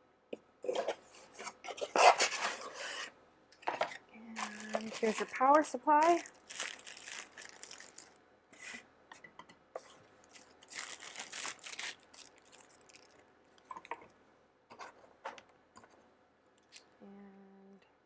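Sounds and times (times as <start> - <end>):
plastic bag crinkling: 3.9 - 8.2, 10.2 - 14.1.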